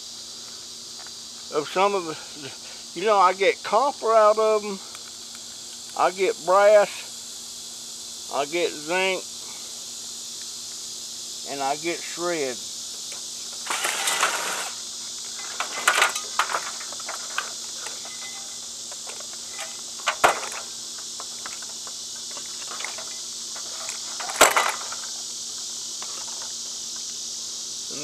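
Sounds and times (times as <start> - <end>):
crickets buzzing: 0.0 - 28.0
metal fan parts clinking: 13.1 - 25.2.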